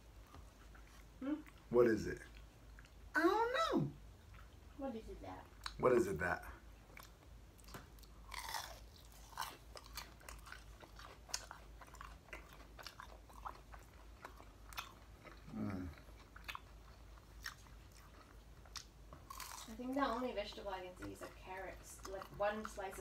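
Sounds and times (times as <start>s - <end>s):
crunching fried spring rolls: 6.9s - 23.0s.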